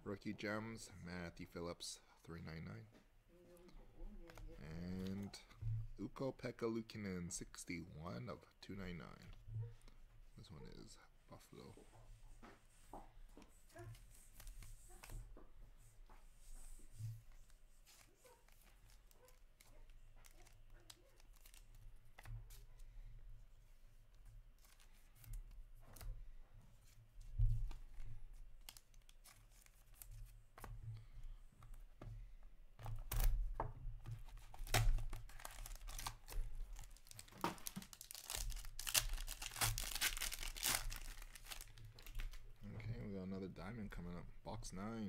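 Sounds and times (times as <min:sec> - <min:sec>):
plastic wrap tearing and crinkling: 0:17.4 - 0:22.3, 0:34.2 - 0:42.6
cards clicking and rustling: 0:17.8 - 0:22.9, 0:28.6 - 0:31.8, 0:34.0 - 0:42.5.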